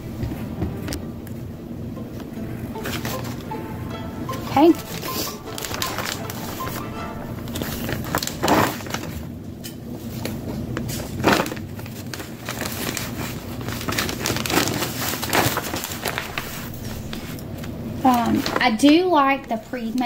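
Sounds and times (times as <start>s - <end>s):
plastic bag crinkling: 4.6s - 9.3s, 10.1s - 17.4s.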